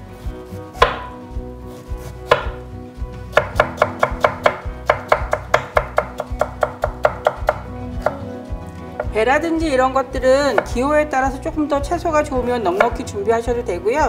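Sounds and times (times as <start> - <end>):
knife chopping on wooden board: 0.5 - 1.2, 2.0 - 2.6, 3.3 - 8.2, 10.5 - 10.8.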